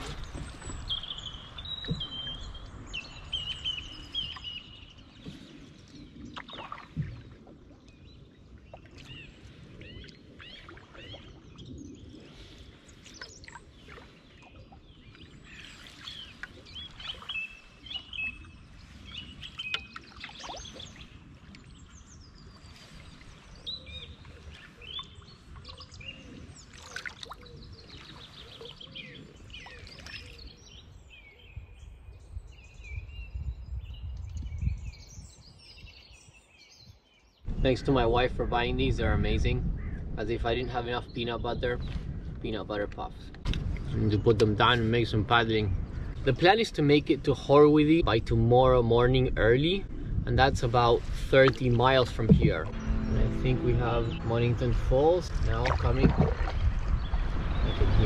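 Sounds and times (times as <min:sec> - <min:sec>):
paddle splashing in water: 0:00.0 - 0:30.5, 0:51.0 - 0:58.0
small birds chirping: 0:00.0 - 0:38.1
low rumble: 0:52.0 - 0:58.0.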